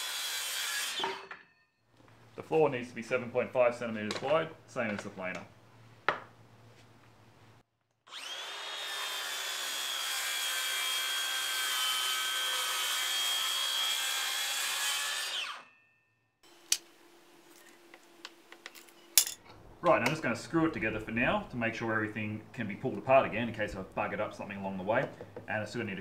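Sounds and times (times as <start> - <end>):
circular saw cutting wood: 0.0 - 1.4, 8.1 - 15.8.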